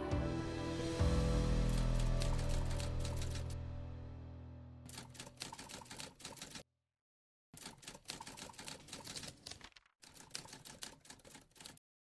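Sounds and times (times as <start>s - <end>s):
rapid typing-like clicking: 1.7s - 3.6s, 4.9s - 6.6s, 7.6s - 11.8s.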